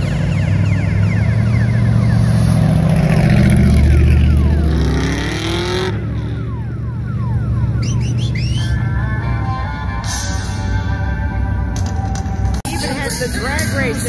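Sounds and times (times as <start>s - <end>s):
car engine revving: 0.0s - 9.3s.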